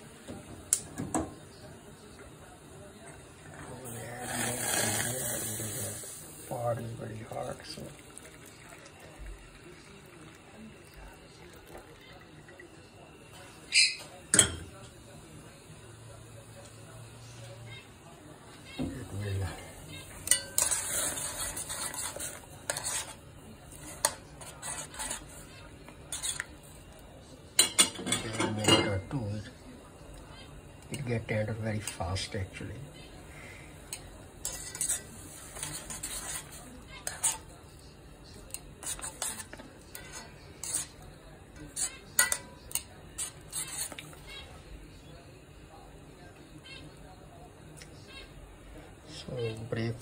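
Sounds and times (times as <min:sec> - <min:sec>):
utensils scraping cookware: 0:03.5 - 0:06.1, 0:18.8 - 0:26.5, 0:27.6 - 0:29.1, 0:33.9 - 0:37.6, 0:38.4 - 0:44.3
utensils clinking: 0:19.5 - 0:23.2, 0:27.5 - 0:29.1, 0:33.9 - 0:37.5, 0:38.4 - 0:44.2.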